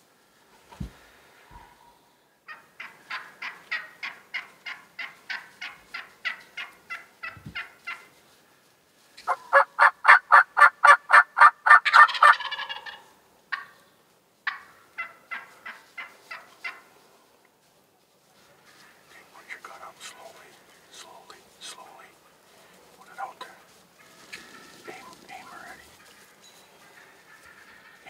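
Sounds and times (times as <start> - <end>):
wild turkey yelping: 9.2 - 13.8, 14.4 - 16.9.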